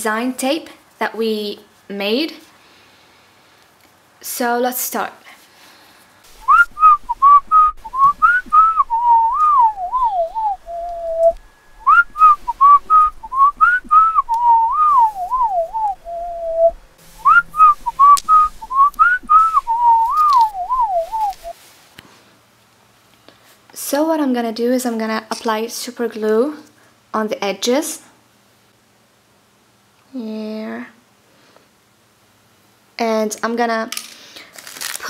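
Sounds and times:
person whistling a tune: 6.4 - 21.5.

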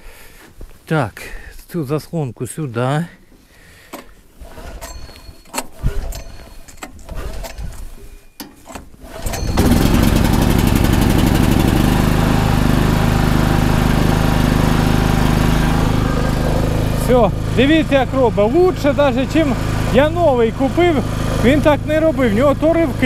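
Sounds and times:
handling knocks and clicks: 3.9 - 9.5
generator engine running: 9.0 - 23.0.

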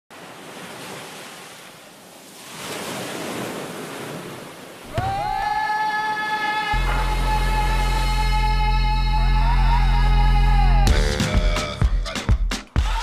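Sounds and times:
ocean surf on beach: 0.1 - 8.2.

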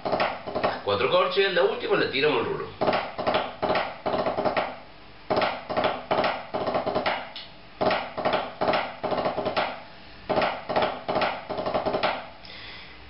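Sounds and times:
drumsticks on a practice pad: 2.8 - 12.4.

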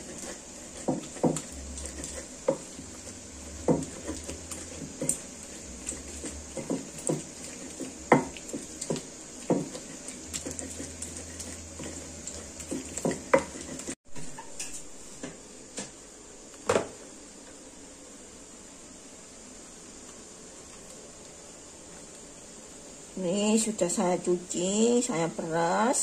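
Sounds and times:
stone pestle pounding in mortar: 0.0 - 2.9, 3.5 - 5.2, 5.8 - 13.9.

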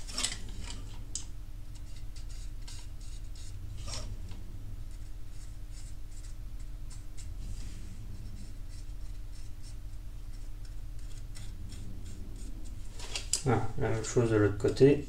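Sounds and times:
knife scraping plastic: 0.0 - 4.4
steady low hum: 0.0 - 15.0.

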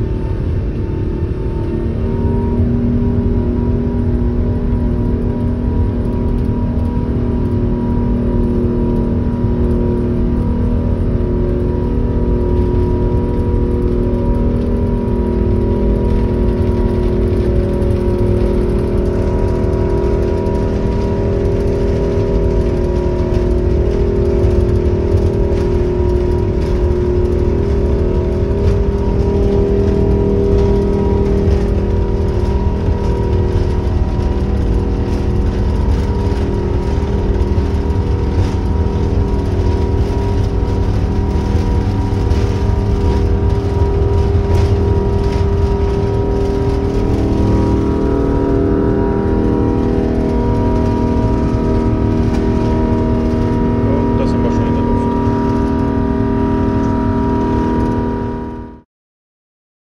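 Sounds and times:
jet engines rumbling at takeoff: 0.0 - 58.8.

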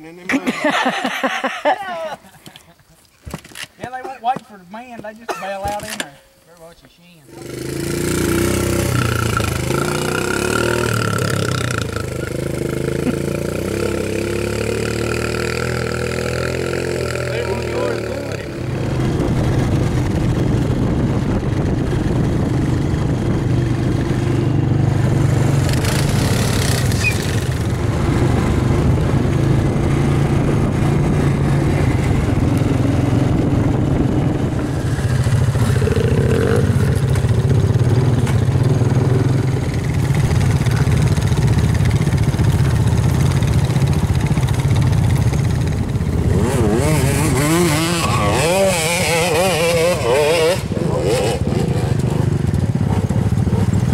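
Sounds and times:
atv engine running: 7.3 - 53.9.

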